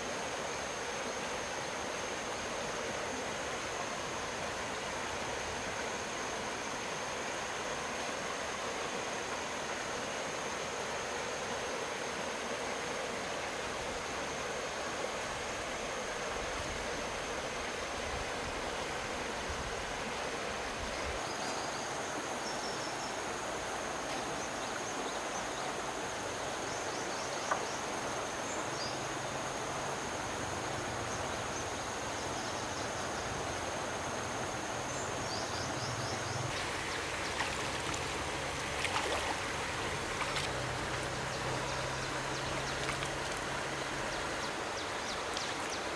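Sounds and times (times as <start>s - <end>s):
stream water flowing: 0.0s - 45.9s
insect high trill: 34.8s - 45.9s.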